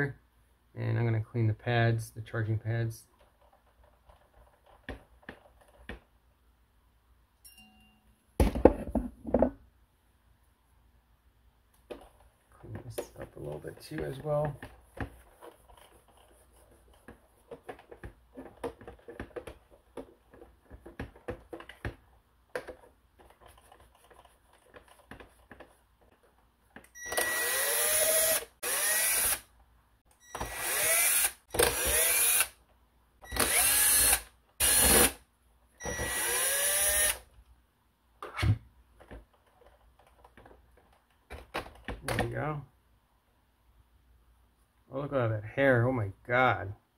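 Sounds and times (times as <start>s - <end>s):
handling clicks and rubbing: 3.0s - 6.2s, 11.7s - 27.0s, 38.2s - 42.1s
cordless drill whining: 27.0s - 29.4s, 30.2s - 32.6s, 33.2s - 35.2s, 35.8s - 37.2s.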